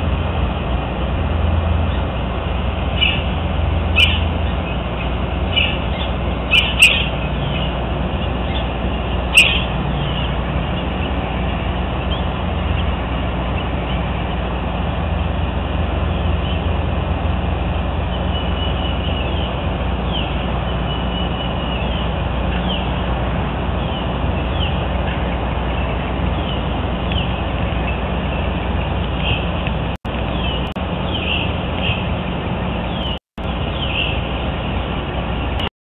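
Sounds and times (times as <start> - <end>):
small birds chirping: 3.0 - 3.3, 3.9 - 14.5, 18.1 - 23.0, 23.8 - 28.5, 30.3 - 32.1, 32.8 - 34.2.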